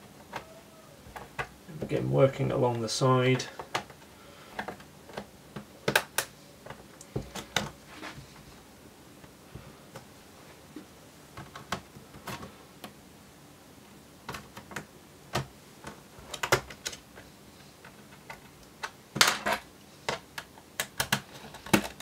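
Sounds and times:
plastic clips clicking loose: 0:20.1 - 0:22.0.

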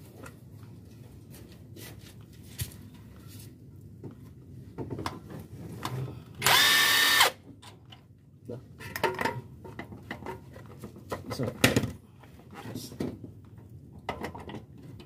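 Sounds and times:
power wrench whine: 0:06.4 - 0:07.4.

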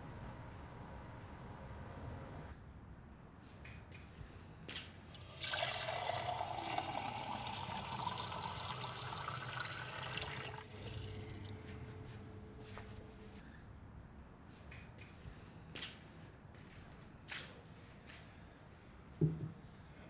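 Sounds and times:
tap water filling a glass: 0:05.2 - 0:11.8
small knocks: 0:19.2 - 0:19.6.

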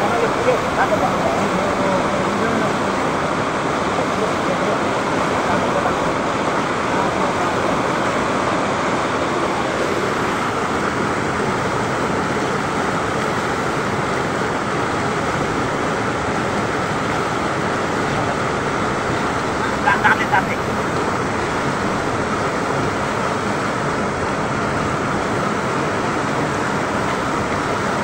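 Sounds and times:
river rushing over rocks: 0:00.0 - 0:28.0.

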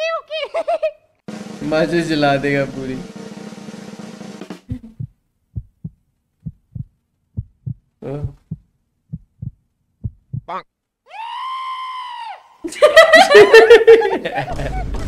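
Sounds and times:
heartbeat thumps: 0:04.6 - 0:10.6.

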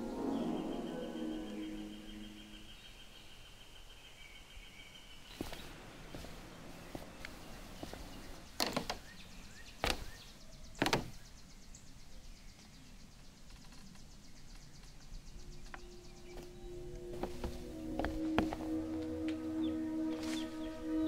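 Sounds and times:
footsteps on wooden boards: 0:05.3 - 0:09.2, 0:09.8 - 0:11.2, 0:15.7 - 0:19.0.

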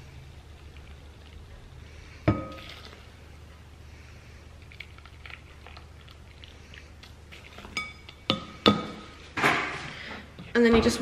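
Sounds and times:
water trickling into plastic cup: 0:04.6 - 0:07.6.

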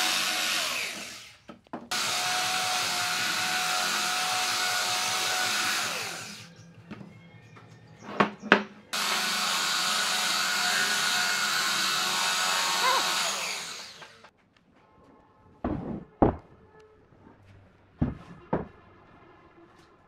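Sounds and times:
belt sander running on wood: 0:01.9 - 0:06.5, 0:09.0 - 0:14.3.

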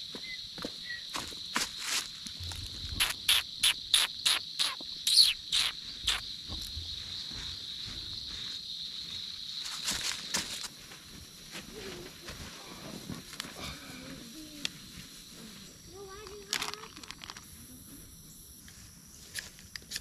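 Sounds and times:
insect chorus trilling: 0:00.0 - 0:20.0.

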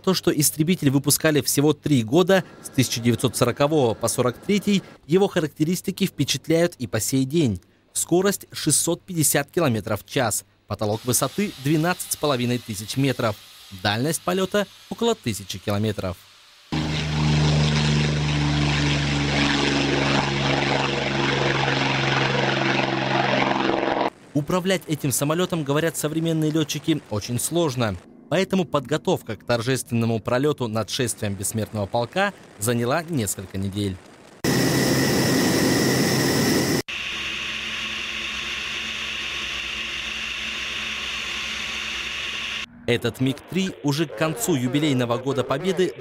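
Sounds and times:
propeller aircraft engine drone: 0:16.7 - 0:24.4, 0:33.4 - 0:44.9
low hum: 0:16.8 - 0:46.0.

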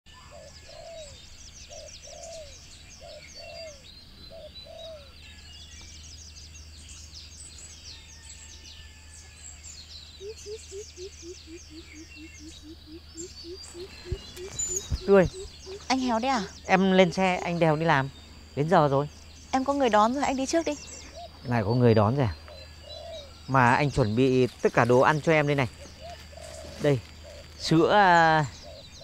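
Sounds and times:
dove-like cooing: 0:00.1 - 0:05.4, 0:10.1 - 0:18.1, 0:19.6 - 0:24.3, 0:25.5 - 0:29.0
short low repeated bird calls: 0:00.1 - 0:29.0
small birds chirping: 0:00.1 - 0:29.0.

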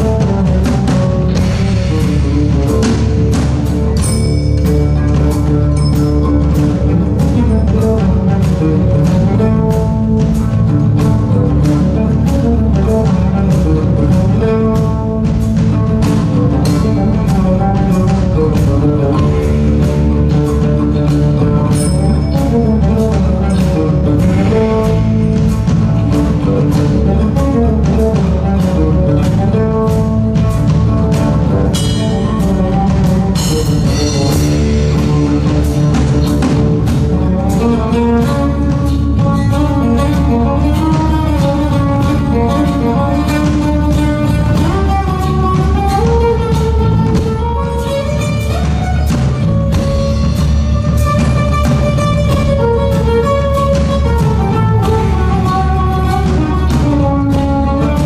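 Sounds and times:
guitar melody: 0:00.0 - 0:58.0
low bass: 0:00.0 - 0:58.0
percussion beat: 0:00.0 - 0:58.0.

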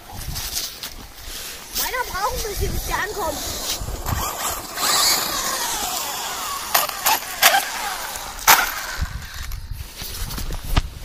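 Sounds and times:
tyres on snow and grass: 0:00.0 - 0:11.0
electric motor whine: 0:03.2 - 0:09.6.

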